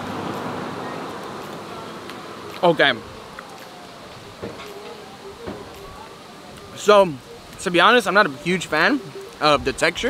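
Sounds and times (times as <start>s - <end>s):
vehicle road noise passing: 0.0s - 6.6s.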